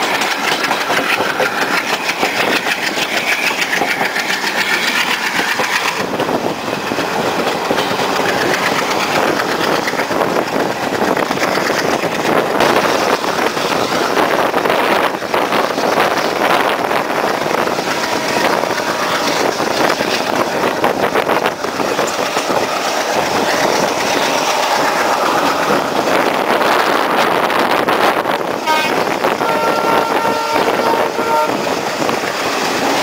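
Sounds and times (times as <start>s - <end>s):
diesel locomotives working hard: 0.0s - 33.0s
train coaches running on rails: 0.0s - 33.0s.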